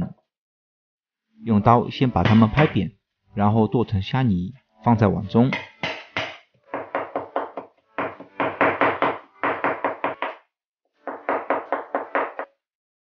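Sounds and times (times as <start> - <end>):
cleaver chopping on wooden board: 2.2 - 2.7, 5.6 - 10.4, 11.1 - 12.5.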